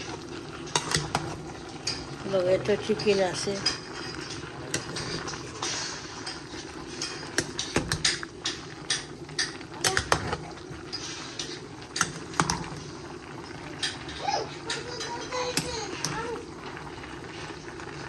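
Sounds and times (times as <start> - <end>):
metal spoon scraping a pot: 3.0 - 13.0.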